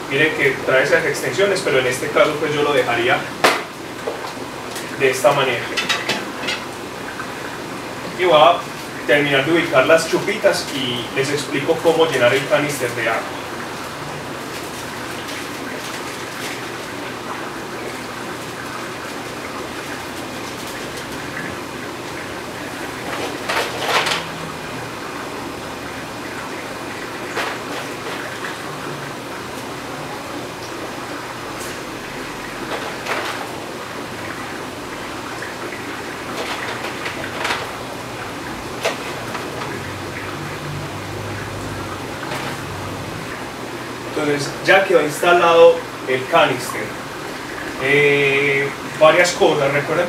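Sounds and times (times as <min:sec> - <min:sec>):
room noise: 0:00.0 - 0:50.0.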